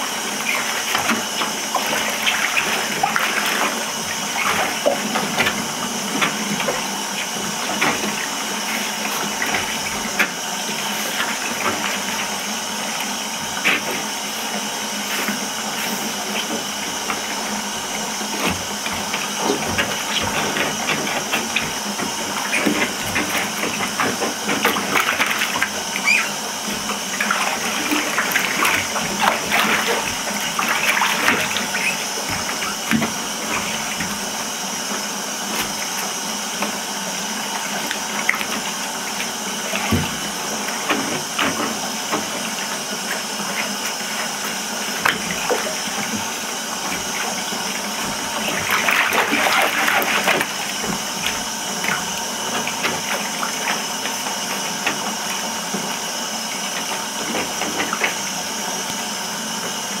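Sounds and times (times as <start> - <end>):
water running into bathtub: 0.0 - 59.6
splashing in water: 15.3 - 36.8, 37.5 - 55.4.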